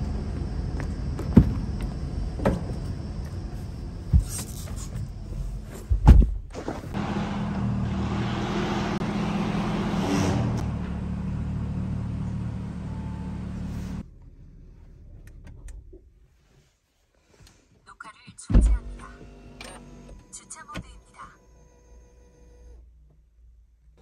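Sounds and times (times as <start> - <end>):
car engine idling: 10.6 - 15.4.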